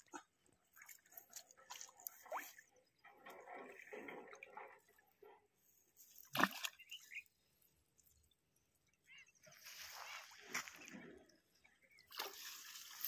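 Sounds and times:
faint rustling through branches: 9.4 - 11.0.

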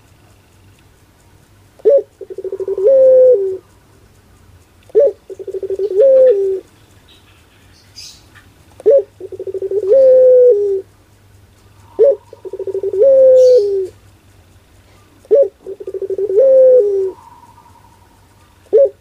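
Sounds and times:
dove cooing: 1.8 - 3.8, 4.9 - 6.8, 8.8 - 10.9, 11.6 - 14.1, 14.7 - 19.0.

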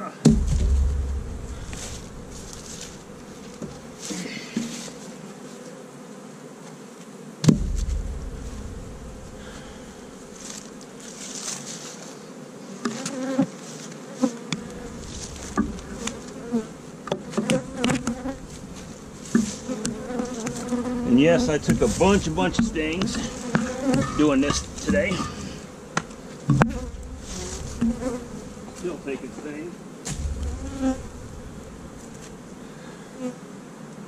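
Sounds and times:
bees buzzing: 0.0 - 34.0
sharp knocks: 0.2 - 4.0, 7.4 - 10.9, 14.5 - 16.4, 17.0 - 28.8, 30.0 - 32.6.

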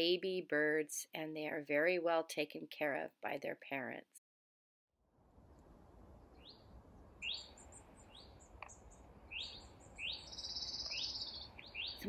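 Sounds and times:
faint low rumble: 5.1 - 10.1
bird trill: 6.3 - 12.0
songbirds whistling: 7.2 - 12.0.

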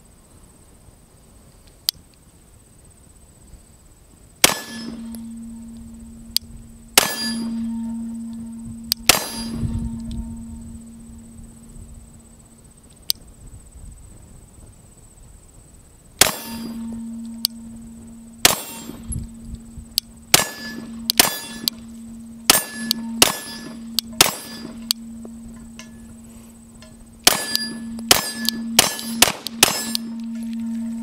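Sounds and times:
pistol shots: 4.4 - 5.0, 7.0 - 7.4, 9.1 - 9.6, 16.2 - 16.7, 18.4 - 19.0, 20.3 - 21.7, 22.5 - 24.7, 27.2 - 30.1
low ringing tone: 4.4 - 12.9, 16.2 - 31.0.

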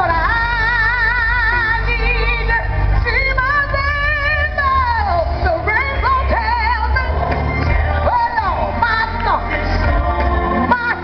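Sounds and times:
band accompaniment: 0.0 - 11.0
low bass: 0.0 - 11.0
woman singing gospel: 0.0 - 11.0.

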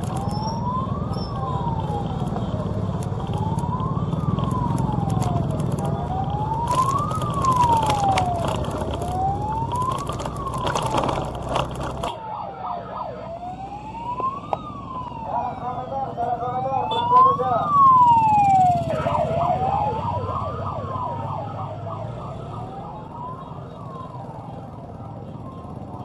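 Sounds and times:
vehicle engine rumble with crackling: 0.0 - 12.3
wail siren rising and falling: 0.0 - 26.0.

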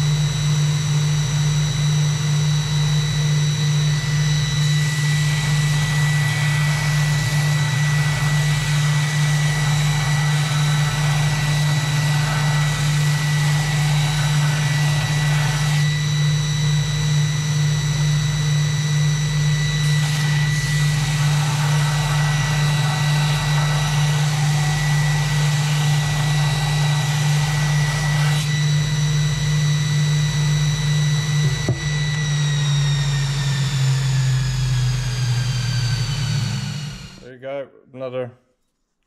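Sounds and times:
belt grinder motor humming: 4.4 - 16.9, 19.4 - 30.5, 31.2 - 37.2.

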